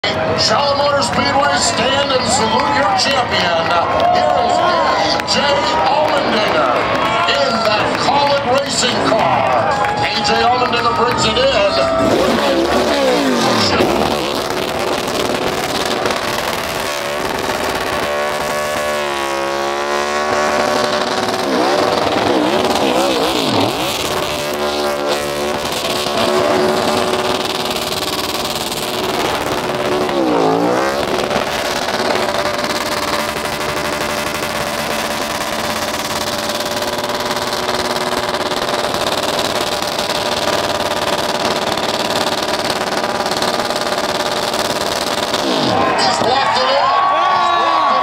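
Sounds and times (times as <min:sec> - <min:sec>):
tyres spinning: 0:10.0 - 0:46.8
car engine revving hard: 0:10.7 - 0:46.3.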